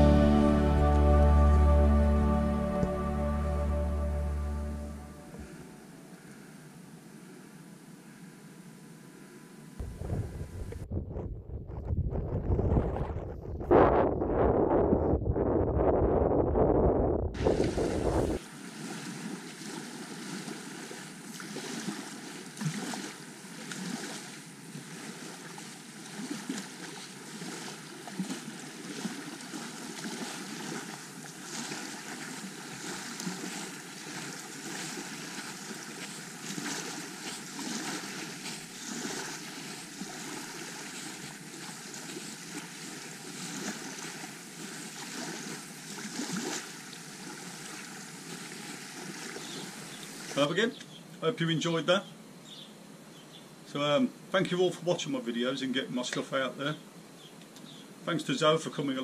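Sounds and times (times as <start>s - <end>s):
wind noise on microphone: 9.8s - 18.4s
small waves washing onto shore: 17.4s - 50.7s.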